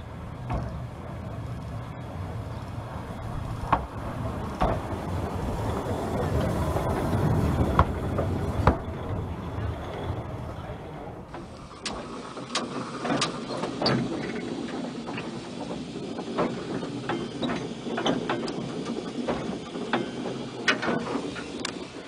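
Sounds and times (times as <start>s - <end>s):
clanks and clicks of wheels: 0.0s - 22.0s
steam locomotive running: 0.0s - 22.0s.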